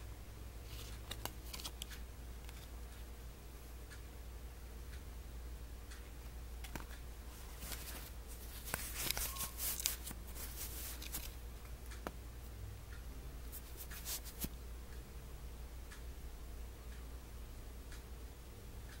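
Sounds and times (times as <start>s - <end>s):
low steady hum: 0.0s - 19.0s
scratchy cloth rustling: 7.4s - 11.3s.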